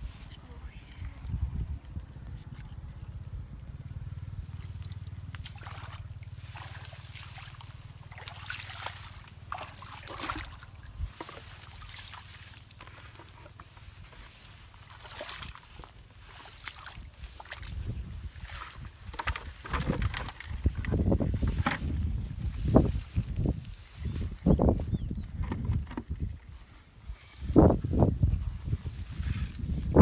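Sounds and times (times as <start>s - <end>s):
steady low rumble: 0.0s - 8.2s
muddy water splashing: 0.0s - 24.3s.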